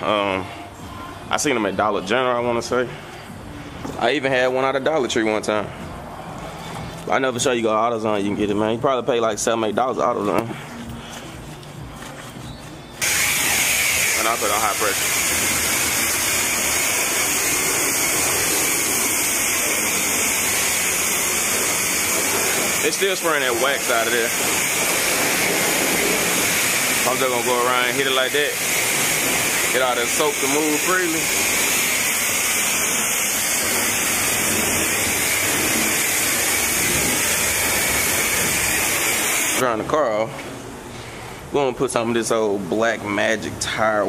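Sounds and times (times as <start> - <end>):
high-pressure water spray hissing: 13.0 - 39.6.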